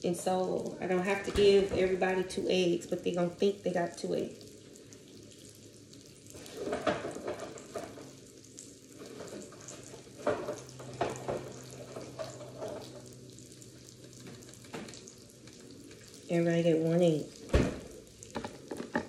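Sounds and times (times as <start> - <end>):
steady low hum: 0.0 - 18.9
food sizzling on a griddle: 3.8 - 18.7
knocks and clatter of handling: 6.6 - 8.1, 18.3 - 19.0.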